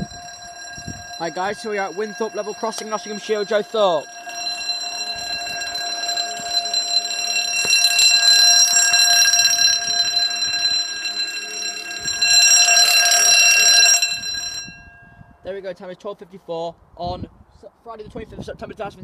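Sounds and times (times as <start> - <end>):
level crossing alarm tone: 0.0 - 15.0.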